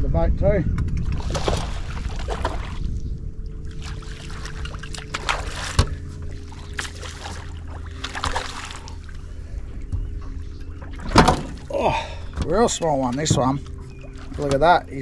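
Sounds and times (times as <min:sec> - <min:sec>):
low rumble: 0:00.0 - 0:15.0
fish splashing at the surface: 0:01.0 - 0:02.8, 0:03.8 - 0:09.1.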